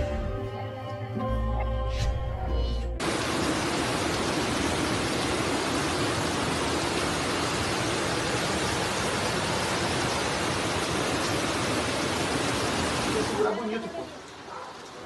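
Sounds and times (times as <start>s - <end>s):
floodwater rushing: 3.0s - 15.0s
heavy rain: 3.0s - 15.0s.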